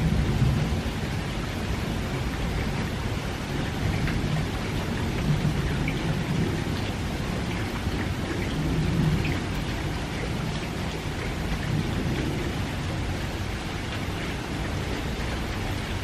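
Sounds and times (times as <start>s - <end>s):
light rain falling: 0.0s - 16.0s.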